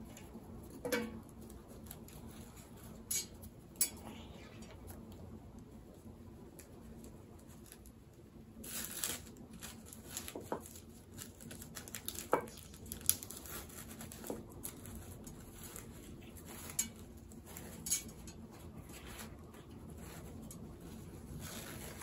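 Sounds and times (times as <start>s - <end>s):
packing material rustling: 8.6s - 22.0s.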